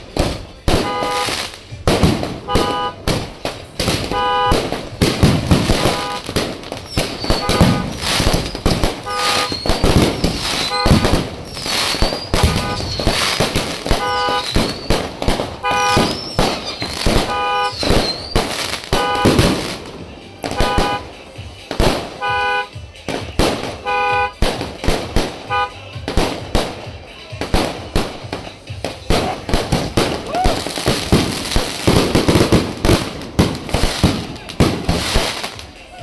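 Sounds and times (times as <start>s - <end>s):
fireworks bangs and crackling: 0.0s - 36.0s
horn toots: 0.7s - 1.4s, 2.3s - 3.1s, 4.0s - 19.6s, 20.4s - 21.2s, 22.0s - 22.8s, 23.6s - 24.4s, 25.3s - 26.0s
firework whistles: 5.5s - 19.6s.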